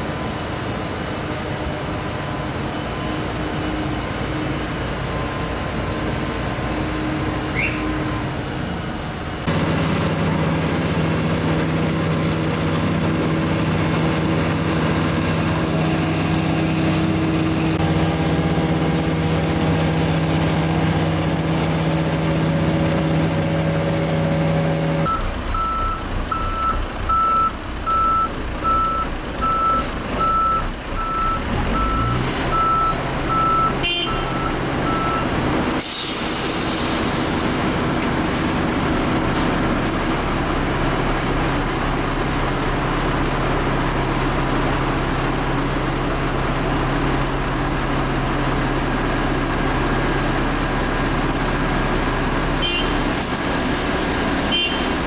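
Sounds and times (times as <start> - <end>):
diesel engines running: 0.0 - 55.0
truck reversing alarm beeping: 25.0 - 35.8
air brake hiss: 35.6 - 37.6.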